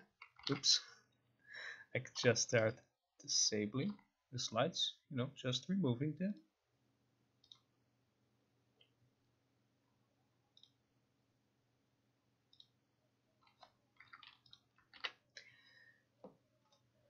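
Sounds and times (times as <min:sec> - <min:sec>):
computer mouse clicks: 0:07.4 - 0:07.7, 0:10.5 - 0:10.8, 0:12.5 - 0:12.8.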